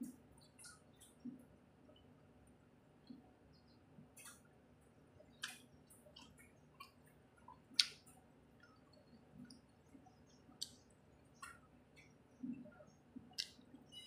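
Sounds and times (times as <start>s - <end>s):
person chewing food: 5.3s - 14.0s.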